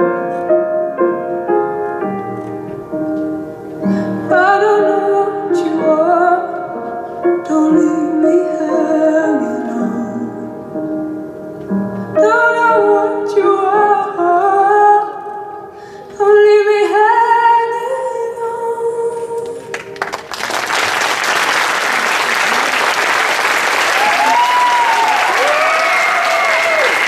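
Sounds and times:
audience applauding: 19.7s - 27.0s
cheering calls: 21.8s - 27.0s.

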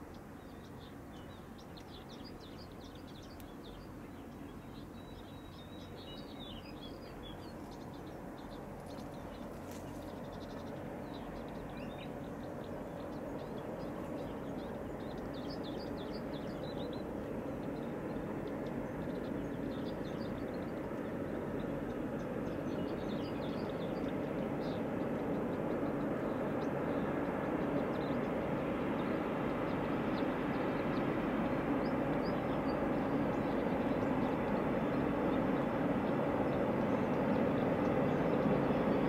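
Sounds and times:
birds chirping: 0.0s - 39.0s
freight train rumbling: 0.6s - 39.0s.

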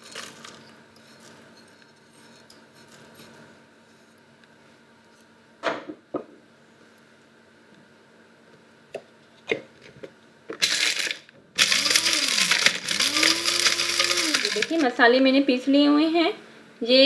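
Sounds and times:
electric grinder motor humming: 10.6s - 14.8s.

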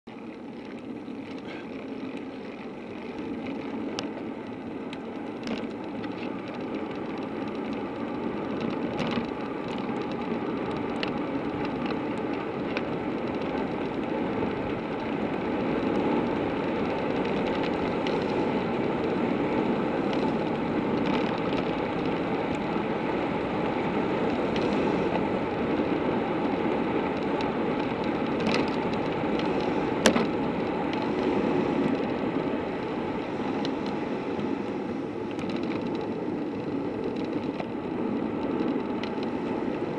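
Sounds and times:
bicycle clicks and rattles: 0.1s - 39.9s
bicycle tyres on asphalt: 0.1s - 39.9s
wind rush: 8.1s - 39.9s.

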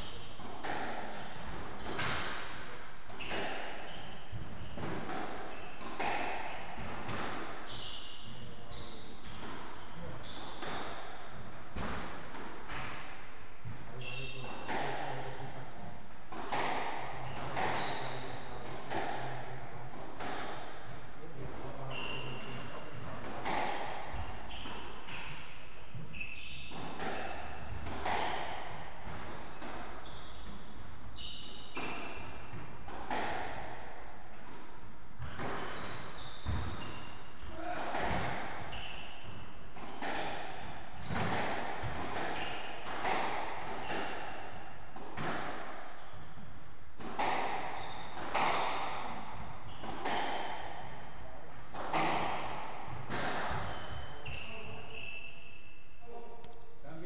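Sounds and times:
squash ball hitting rackets and walls: 0.0s - 56.4s
shoes squeaking on wooden floor: 7.7s - 9.4s, 30.0s - 31.8s, 35.2s - 37.1s, 47.6s - 50.2s, 53.5s - 55.6s.

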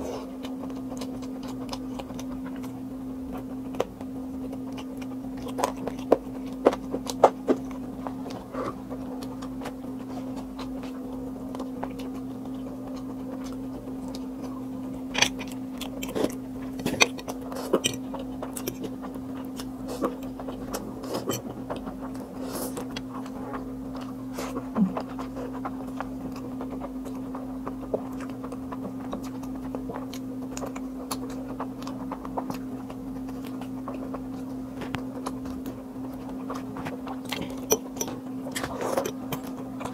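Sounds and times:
chewing: 0.0s - 39.9s.

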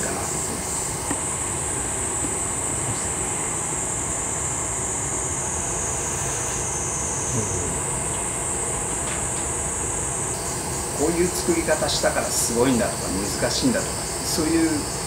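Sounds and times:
gas furnace rushing and hissing: 0.0s - 15.0s.

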